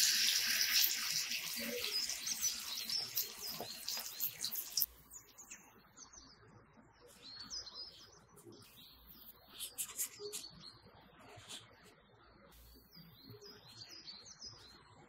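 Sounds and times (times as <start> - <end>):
patties sizzling in oil: 0.0 - 5.3
birds chirping: 0.6 - 6.3.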